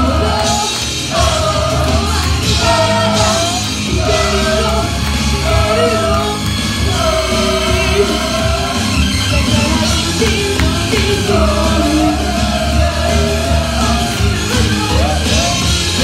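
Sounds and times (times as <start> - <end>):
loud bass-heavy rock music: 0.0 - 16.0.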